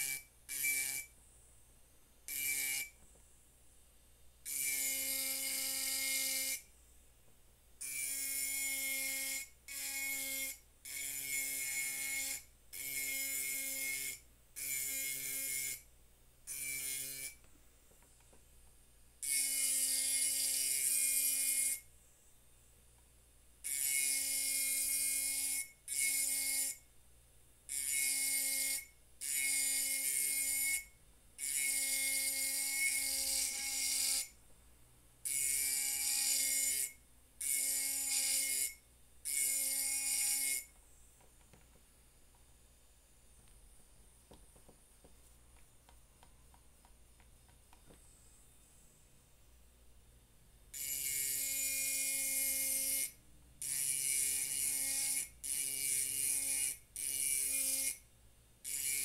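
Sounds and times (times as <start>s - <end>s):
electric engraving pen humming: 0.0s - 1.2s, 2.2s - 3.0s, 4.4s - 6.7s, 7.8s - 17.5s, 19.2s - 21.9s, 23.6s - 26.9s, 27.7s - 34.4s, 35.2s - 40.8s, 50.7s - 59.0s.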